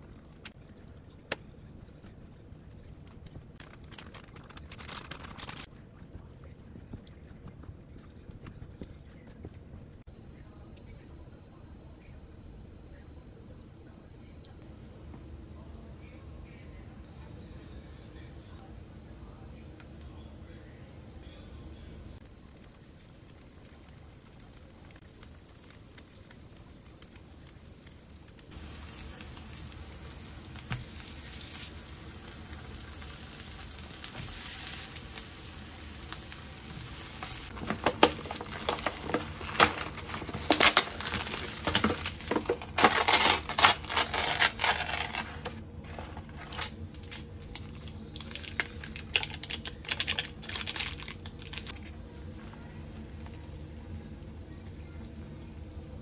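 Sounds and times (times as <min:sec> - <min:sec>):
food sizzling: 0:03.2 - 0:05.7, 0:16.0 - 0:51.8.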